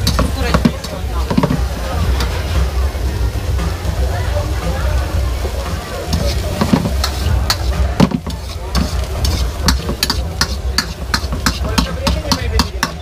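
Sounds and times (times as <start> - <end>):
frying sizzle: 0.0 - 13.0
spatula clanging against wok: 6.1 - 13.0.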